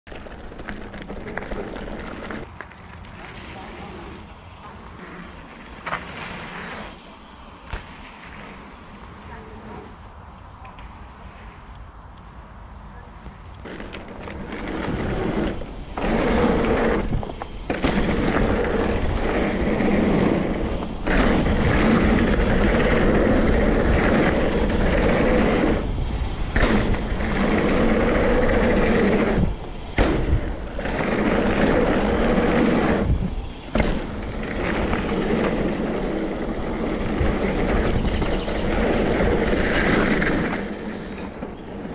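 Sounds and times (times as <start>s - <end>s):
bike tyres rolling over gravel: 0.0s - 9.2s, 13.6s - 41.9s
wind buffeting microphone: 13.4s - 41.9s.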